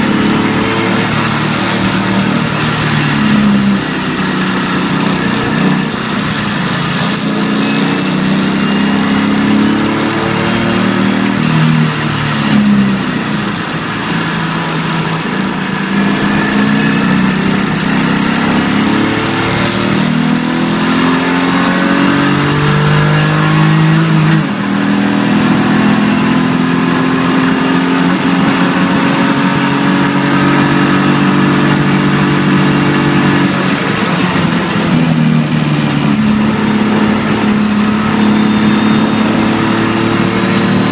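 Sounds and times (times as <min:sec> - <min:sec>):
car engine revving through gears: 0:00.0 - 0:40.9
road and tyre noise: 0:00.0 - 0:40.9.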